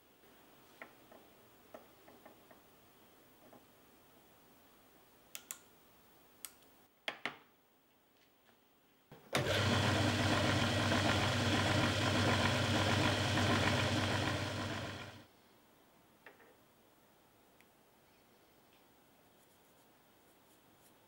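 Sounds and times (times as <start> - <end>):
lathe motor running: 9.4 - 15.2.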